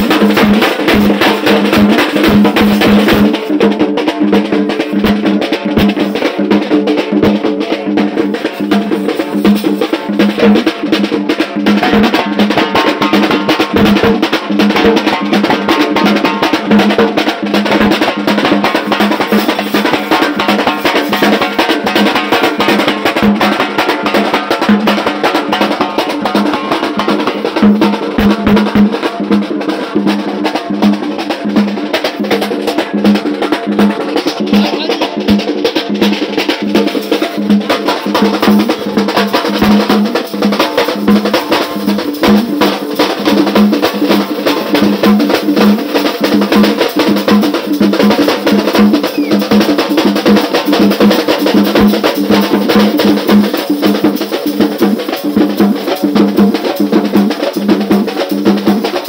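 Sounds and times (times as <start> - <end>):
large drums low beat: 0.0 - 16.9, 25.6 - 29.5
side drums beaten fast: 0.0 - 59.0.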